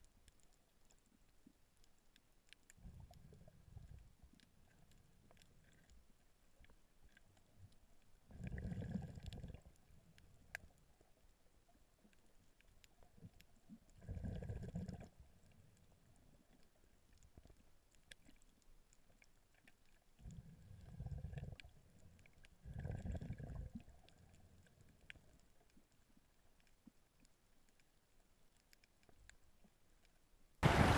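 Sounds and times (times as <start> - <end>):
faint clicks: 0.0 - 30.3.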